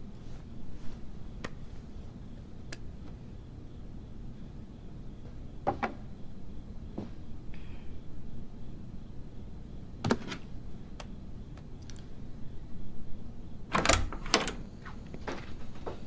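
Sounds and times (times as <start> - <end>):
door latch clicking: 13.7 - 14.6.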